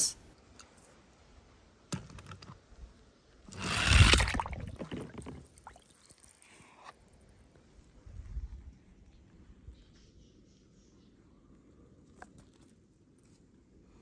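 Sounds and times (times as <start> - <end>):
toy car splashing into water: 3.5 - 6.2
water sloshing: 3.5 - 6.3.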